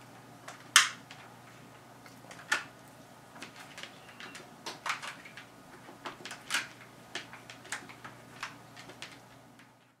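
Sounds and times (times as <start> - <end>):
plastic cat toy clicking and clattering: 3.4 - 9.7.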